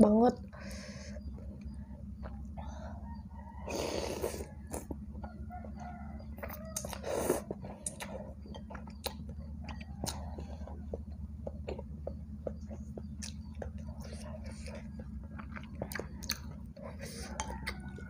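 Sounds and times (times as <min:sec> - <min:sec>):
steady low hum: 0:00.0 - 0:18.0
wet chewing with mouth clicks: 0:06.4 - 0:18.0.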